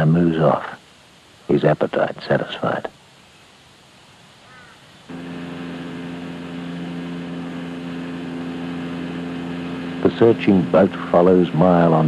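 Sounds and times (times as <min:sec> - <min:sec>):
outboard motor droning: 0:05.1 - 0:12.0.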